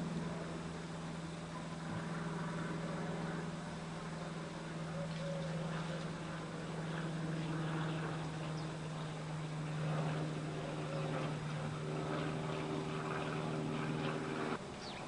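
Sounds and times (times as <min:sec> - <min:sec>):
higher hum: 0:00.0 - 0:15.0
low machine hum: 0:00.0 - 0:15.0
faint bird chirps: 0:04.9 - 0:06.0, 0:14.8 - 0:15.0.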